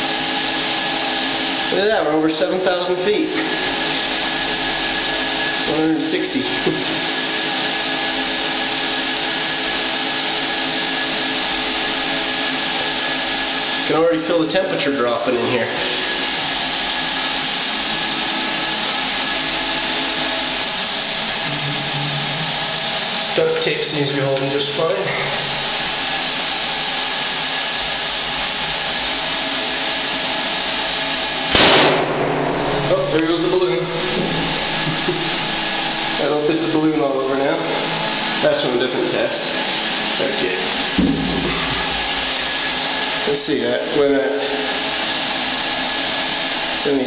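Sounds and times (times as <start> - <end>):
vacuum and blower rushing hiss: 0.0 - 47.0
balloon bursting with a bang: 31.5 - 33.0.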